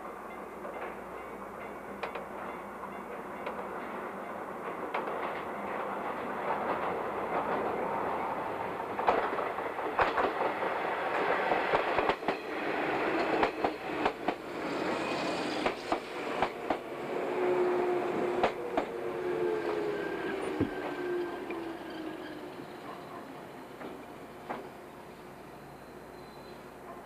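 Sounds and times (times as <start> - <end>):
electric train rumbling: 0.0 - 27.0.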